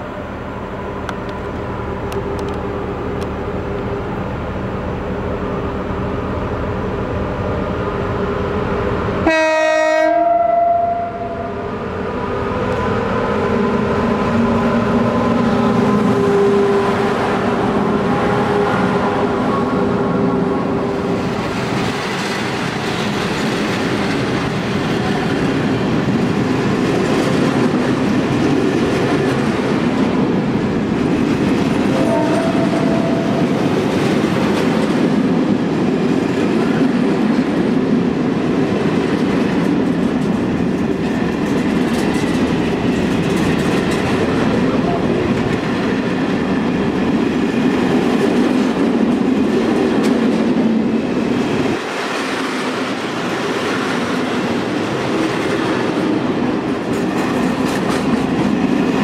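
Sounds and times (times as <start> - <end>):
locomotive horn blast: 9.2 - 11.6, 31.9 - 33.6
train wheels clattering on rails: 20.9 - 59.0.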